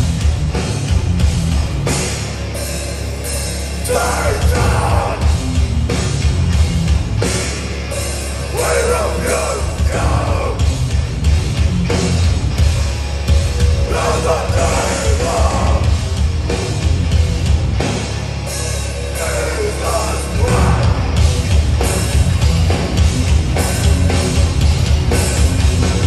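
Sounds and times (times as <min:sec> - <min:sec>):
bass guitar: 0:00.0 - 0:26.0
distorted electric guitars: 0:00.0 - 0:26.0
drums with crashing cymbals: 0:00.0 - 0:26.0
shouted vocals: 0:03.8 - 0:05.3, 0:08.5 - 0:10.6, 0:13.9 - 0:15.8, 0:19.2 - 0:21.2.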